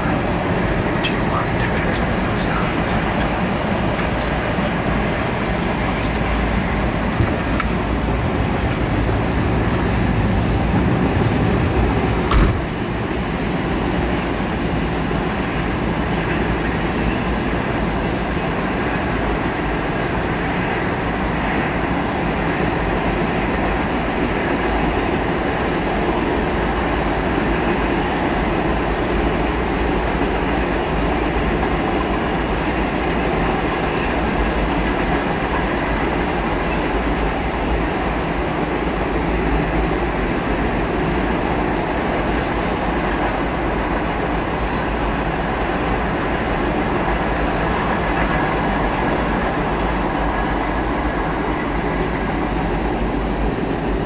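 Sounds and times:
freight train wheels on rails: 0:00.0 - 0:54.0.

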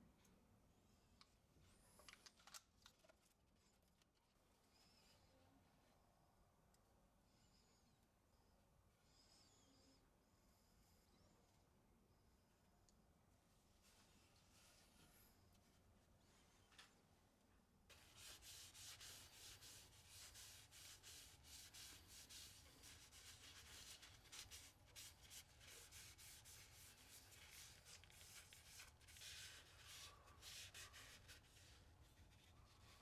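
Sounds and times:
cloth rubbing on wooden handle: 0:17.9 - 0:33.0.

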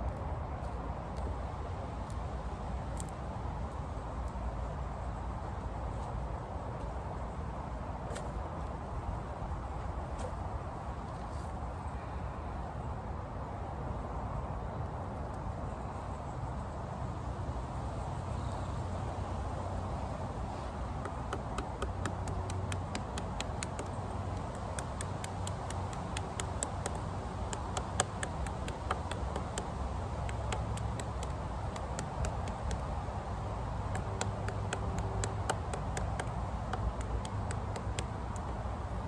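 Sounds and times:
stem clicking and cracking: 0:20.9 - 0:33.0, 0:33.9 - 0:38.6.

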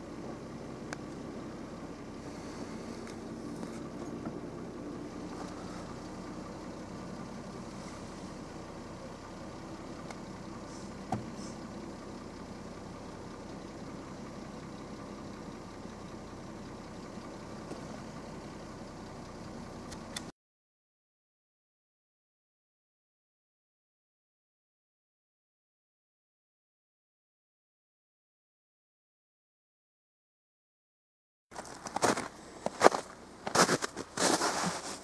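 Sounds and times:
motor humming: 0:00.0 - 0:14.3.

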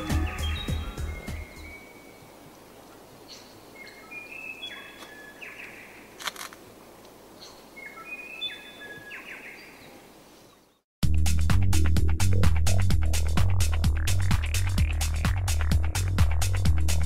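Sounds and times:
bird singing: 0:00.0 - 0:02.3, 0:03.2 - 0:06.1, 0:07.4 - 0:10.8
steady outdoor hiss: 0:00.0 - 0:10.8, 0:12.7 - 0:17.0.

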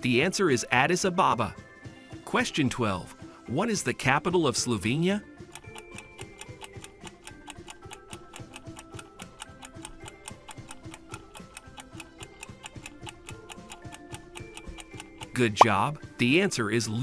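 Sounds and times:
soft background music: 0:00.0 - 0:17.0
clock ticking: 0:05.4 - 0:15.7.

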